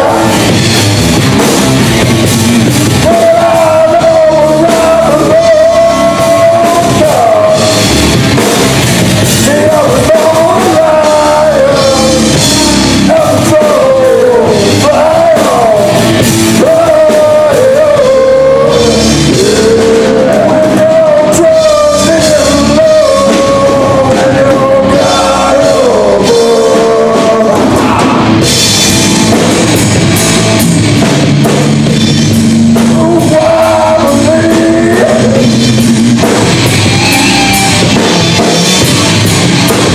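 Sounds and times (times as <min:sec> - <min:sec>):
man singing: 0:00.0 - 0:00.6, 0:02.8 - 0:07.9, 0:09.3 - 0:28.6, 0:32.2 - 0:39.0
bass guitar: 0:00.0 - 0:39.9
drum kit with crashing cymbals: 0:00.0 - 0:39.9
electric guitars: 0:00.0 - 0:39.9.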